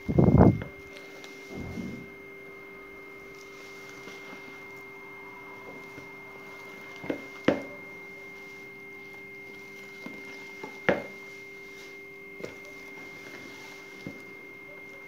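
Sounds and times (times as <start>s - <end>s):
low hum: 0.0s - 8.2s
steady high-pitched tone: 0.0s - 15.0s
spatula stirring stiff dough: 0.6s - 15.0s.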